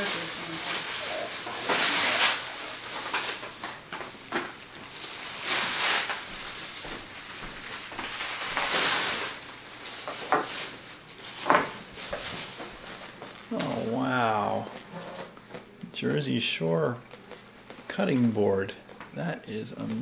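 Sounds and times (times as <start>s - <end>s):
plastic bag crinkling: 0.0s - 14.1s.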